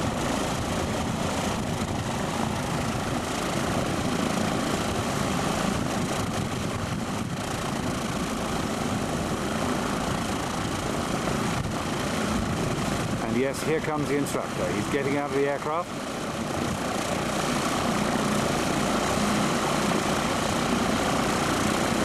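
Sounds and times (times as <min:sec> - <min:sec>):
propeller plane engine idling: 0:00.0 - 0:22.0.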